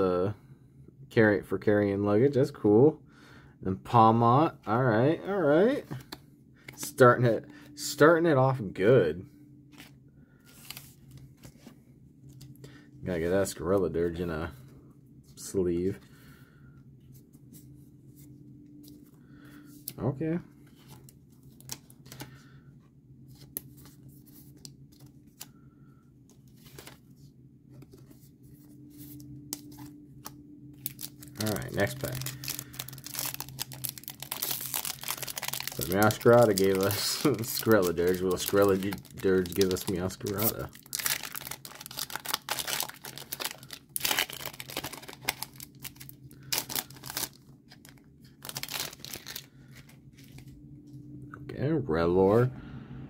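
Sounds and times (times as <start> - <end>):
faint low hum: 0.0 - 53.0
cards rustling in plastic sleeve: 5.2 - 8.2, 9.7 - 14.7, 17.1 - 50.7
foil wrapper crinkling and tearing: 30.8 - 50.5.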